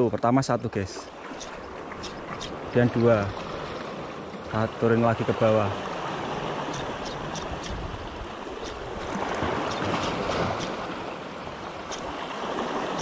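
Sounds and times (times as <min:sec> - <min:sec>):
faint high ticks: 0:01.4 - 0:02.6, 0:06.7 - 0:07.8, 0:08.6 - 0:08.8, 0:09.7 - 0:10.8, 0:11.9 - 0:12.1
waves washing against rocks: 0:05.6 - 0:13.0.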